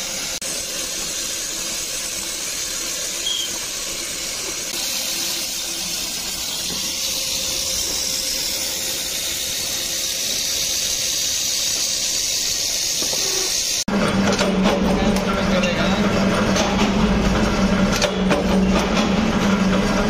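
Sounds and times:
machine hiss with faint tone: 0:00.0 - 0:13.8.

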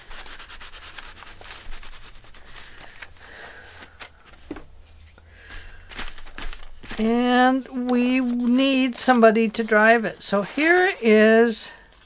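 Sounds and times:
cloth rubbing on paper: 0:00.0 - 0:03.2, 0:09.7 - 0:11.3.

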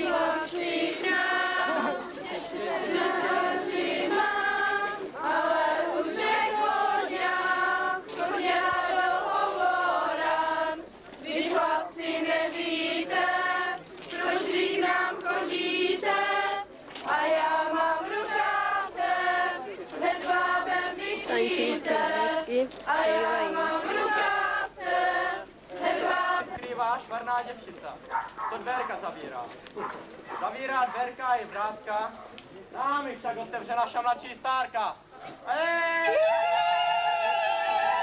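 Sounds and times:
women singing folk song: 0:00.0 - 0:26.7.

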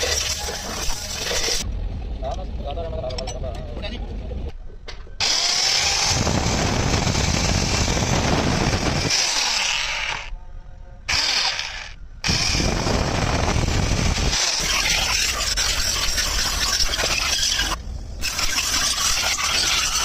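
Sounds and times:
power drill boring into metal: 0:05.2 - 0:10.3, 0:11.1 - 0:20.0.

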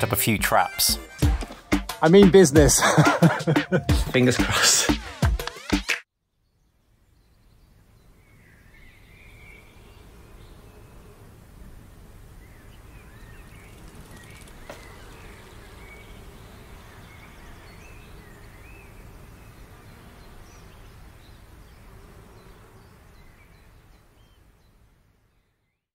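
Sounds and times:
small birds chirping: 0:06.3 - 0:11.2, 0:11.8 - 0:25.9.

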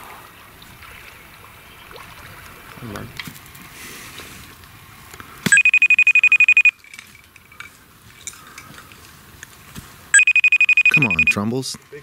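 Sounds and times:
trilling electronic phone ring: 0:05.5 - 0:06.8, 0:10.2 - 0:11.4.

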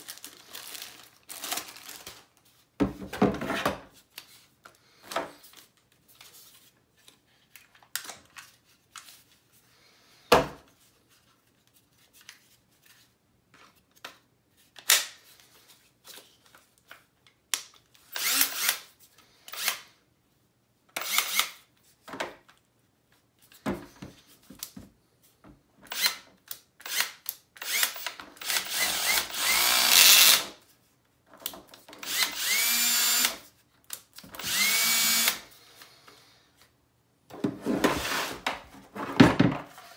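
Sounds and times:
cordless drill running unloaded: 0:18.1 - 0:18.8, 0:26.8 - 0:30.5, 0:32.0 - 0:33.4, 0:34.3 - 0:35.4.

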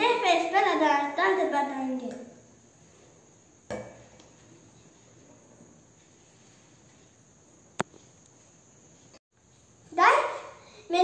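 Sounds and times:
spoon knocking glass bowl: 0:03.7 - 0:04.0.

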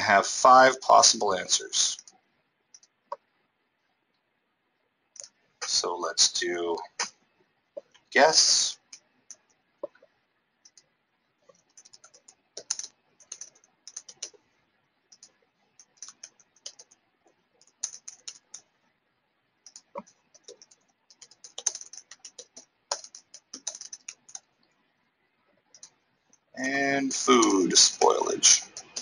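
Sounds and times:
computer keyboard typing: 0:01.9 - 0:02.1, 0:02.7 - 0:02.9, 0:10.6 - 0:10.9, 0:11.5 - 0:14.4, 0:15.1 - 0:17.0, 0:17.6 - 0:18.7, 0:19.6 - 0:24.5, 0:25.7 - 0:26.4, 0:27.2 - 0:29.0.

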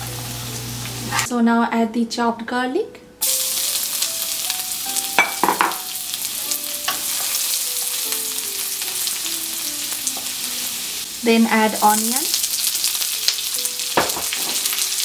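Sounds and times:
garlic sizzling in hot oil: 0:00.0 - 0:01.3, 0:03.2 - 0:15.0.

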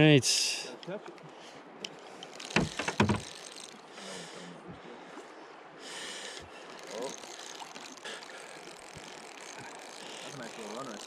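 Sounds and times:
water washing around boat hull: 0:02.3 - 0:03.8
sharp knocks: 0:02.5 - 0:03.3.

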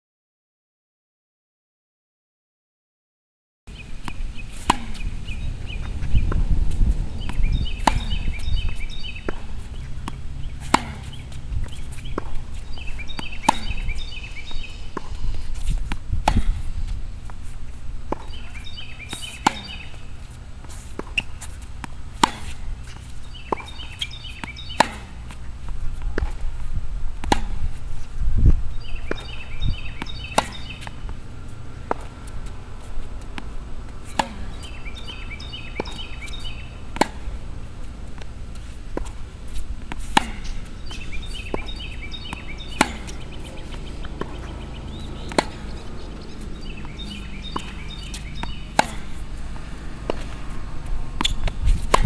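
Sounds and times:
ball bouncing on hard court: 0:04.0 - 0:05.1, 0:05.8 - 0:17.4, 0:18.1 - 0:26.5, 0:27.2 - 0:27.8, 0:28.8 - 0:31.2, 0:33.1 - 0:37.4, 0:38.9 - 0:52.0
tennis racket striking ball: 0:04.0 - 0:28.2, 0:28.8 - 0:52.0.

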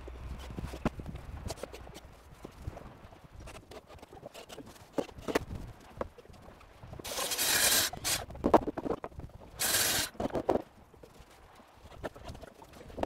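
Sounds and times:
loud hissing: 0:09.6 - 0:10.1.

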